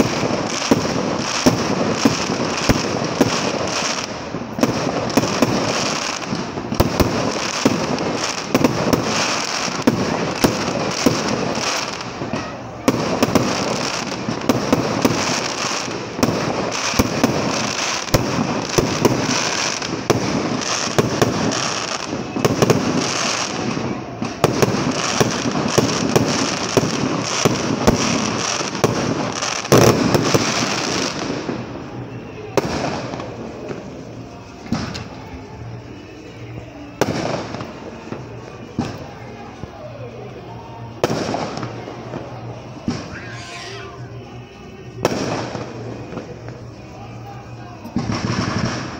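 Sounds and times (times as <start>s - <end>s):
fireworks bangs and crackling: 0.0s - 48.9s.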